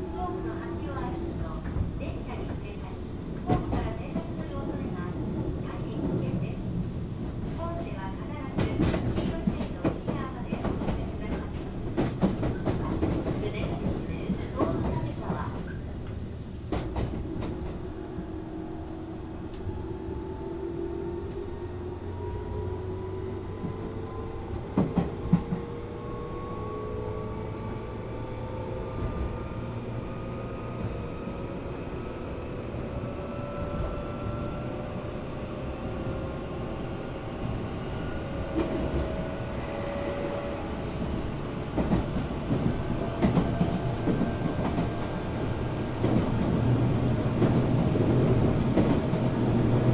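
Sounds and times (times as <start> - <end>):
train wheel rumble: 0.0 - 49.9
rail-joint clacks: 8.4 - 17.9, 41.7 - 45.2.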